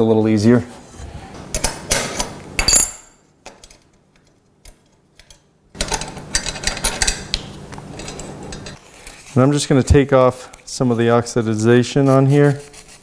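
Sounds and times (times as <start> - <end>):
metal bracket rattling and scraping: 7.9 - 8.8.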